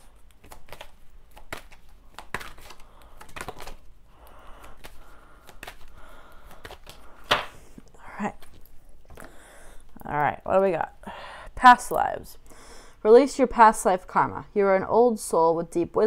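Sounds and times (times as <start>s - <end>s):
cards shuffling: 0.0s - 9.4s.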